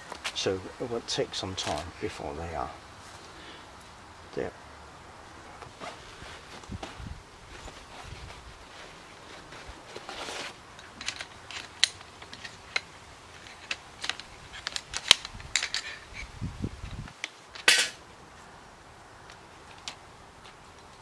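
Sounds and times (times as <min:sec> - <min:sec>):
rustle: 0:00.0 - 0:21.0
camp chair frame clicks: 0:10.4 - 0:16.2, 0:17.0 - 0:18.0.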